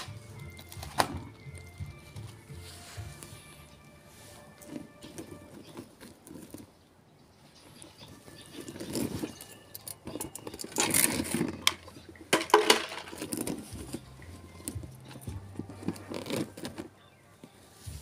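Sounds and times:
hands rummaging in fish net: 0.0s - 6.8s, 7.6s - 18.0s
plastic bag crinkling: 4.4s - 6.7s, 7.8s - 17.0s
plastic container knocks and clicks: 10.8s - 14.0s.

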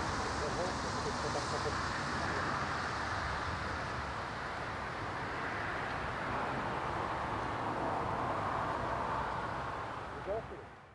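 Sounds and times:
distant turboprop engines rushing: 0.0s - 10.9s.

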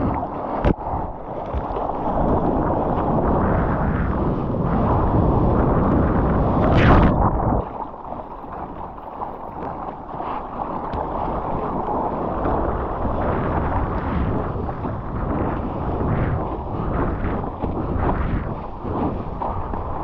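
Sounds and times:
water lapping: 0.0s - 20.0s
water rushing past surfboard: 0.0s - 20.0s
wind buffeting microphone: 0.0s - 20.0s
loud water splash: 5.0s - 11.7s.

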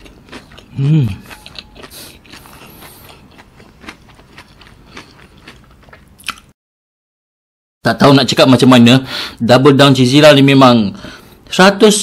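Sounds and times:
man chewing food: 0.0s - 6.5s.

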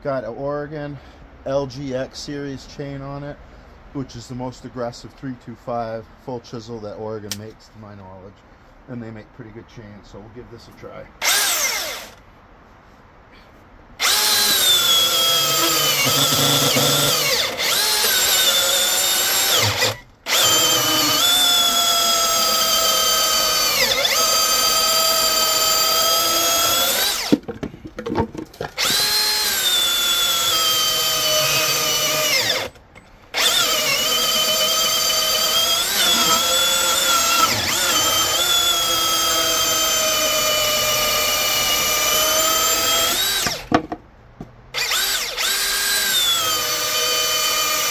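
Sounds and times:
electric chainsaw cutting wood: 11.2s - 12.2s, 14.0s - 27.4s, 28.8s - 43.7s, 44.7s - 47.9s.

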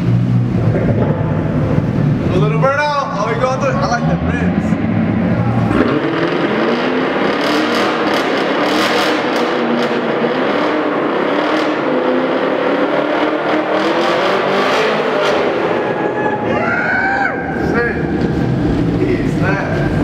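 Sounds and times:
car engine at high revs: 0.0s - 16.6s, 17.4s - 20.0s.

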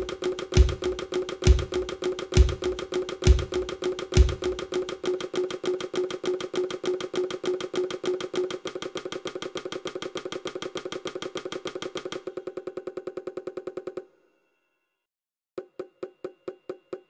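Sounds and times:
synthesized percussive ticks: 0.0s - 12.2s.

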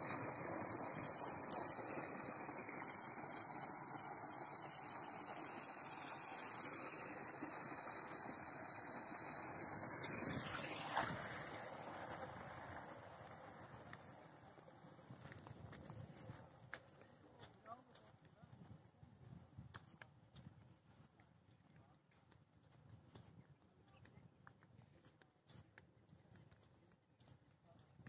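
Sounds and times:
water gushing and splashing: 0.0s - 14.2s.

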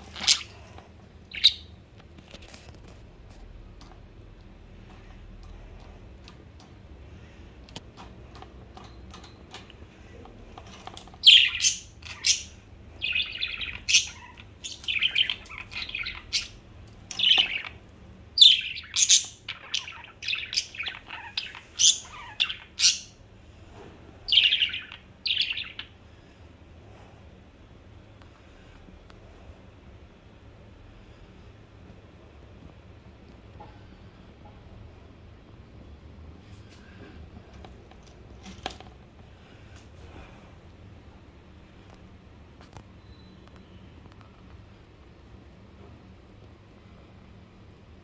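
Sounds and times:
budgerigars chirping and chattering: 0.1s - 0.7s, 1.3s - 1.7s, 10.9s - 17.8s, 18.4s - 23.2s, 24.3s - 26.0s.

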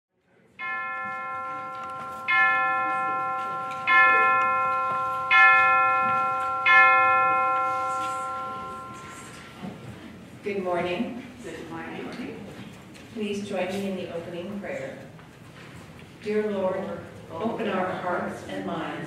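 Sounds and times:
bell ringing: 0.6s - 9.6s.

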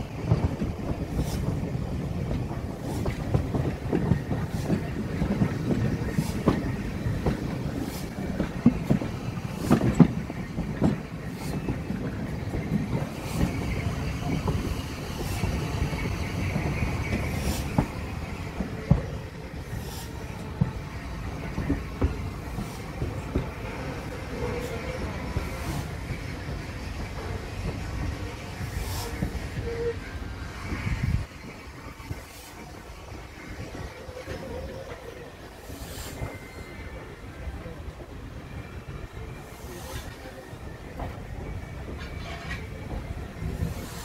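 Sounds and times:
railway carriage rumble: 0.0s - 44.0s
faint wheel squeal: 33.4s - 37.8s.

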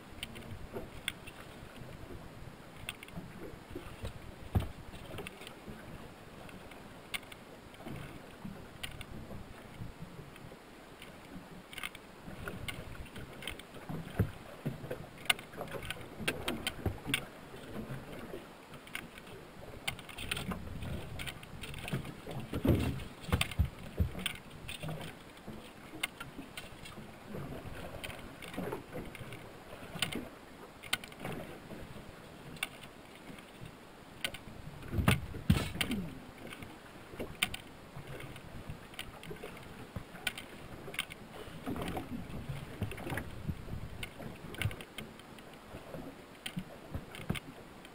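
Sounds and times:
thumps on aluminum boat: 34.9s - 36.0s.

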